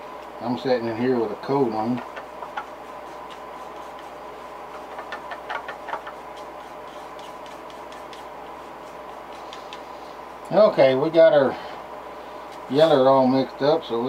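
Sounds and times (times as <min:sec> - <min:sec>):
steady electrical hum: 0:00.0 - 0:14.0
light clicks and taps of mixing: 0:01.8 - 0:10.6.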